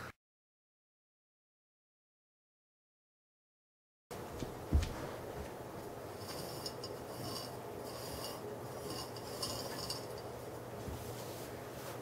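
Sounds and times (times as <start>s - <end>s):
pots scraping on carpet: 4.8s - 12.0s.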